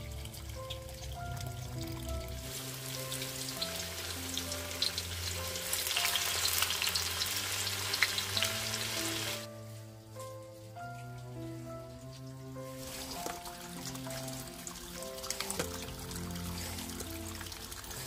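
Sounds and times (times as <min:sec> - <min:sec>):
food sizzling in hot oil: 0:02.3 - 0:09.5.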